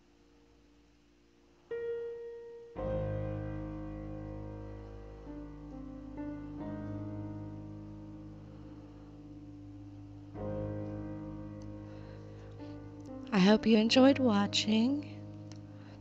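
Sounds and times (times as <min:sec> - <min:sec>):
slow solo piano: 0:01.2 - 0:16.0.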